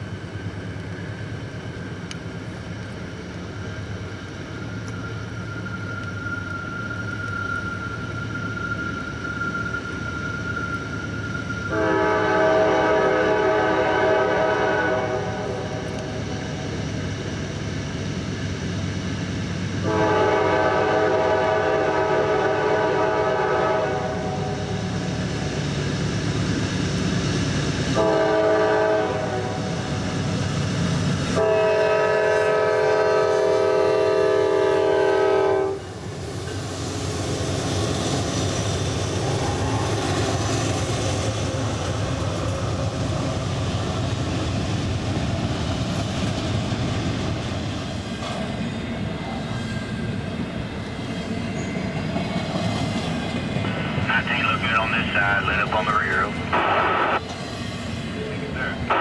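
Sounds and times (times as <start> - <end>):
diesel locomotive engines: 0.0 - 59.0
train air horn blasts: 11.7 - 16.0, 19.8 - 24.6, 27.9 - 29.9, 31.4 - 35.9.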